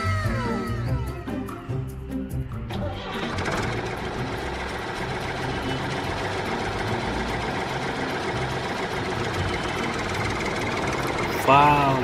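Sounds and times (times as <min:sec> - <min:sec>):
tractor engine idling: 0:02.5 - 0:12.0.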